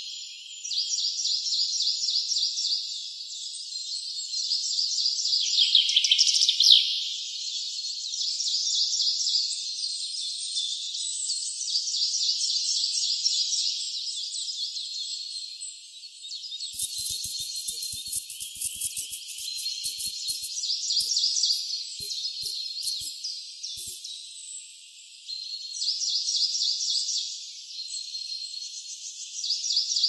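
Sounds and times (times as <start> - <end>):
high-pitched animal chirps: 16.8 - 23.1.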